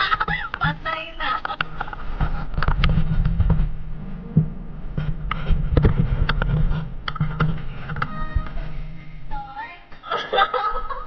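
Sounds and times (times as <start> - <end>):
wind buffeting microphone: 1.9 - 9.3
short pitched tone: 3.9 - 5.3.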